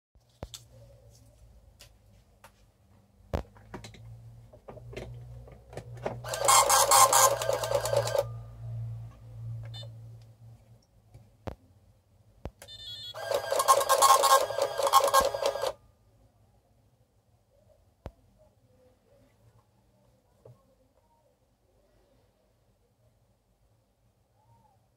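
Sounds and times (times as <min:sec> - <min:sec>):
paper-roll printer rattling: 0:06.2 - 0:08.3, 0:13.2 - 0:15.8.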